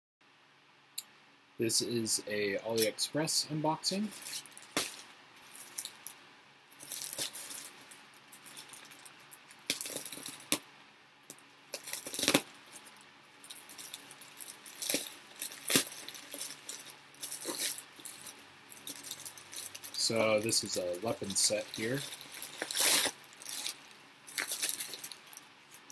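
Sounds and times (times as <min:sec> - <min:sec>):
plastic bag crinkling: 0:04.1 - 0:06.2, 0:06.8 - 0:10.6, 0:11.7 - 0:25.9
plastic tearing: 0:06.8 - 0:07.8, 0:11.7 - 0:25.9
knife cutting plastic: 0:21.0 - 0:25.2.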